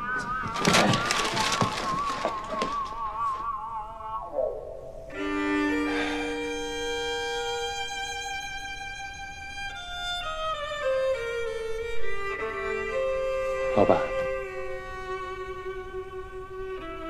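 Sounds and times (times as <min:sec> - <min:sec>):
violin background music: 0:05.1 - 0:17.0.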